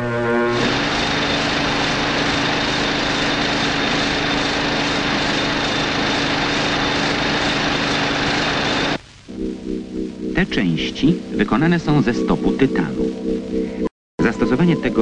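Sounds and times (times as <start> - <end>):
vibratory machine running: 0.5 - 9.0
high whine: 0.5 - 14.6.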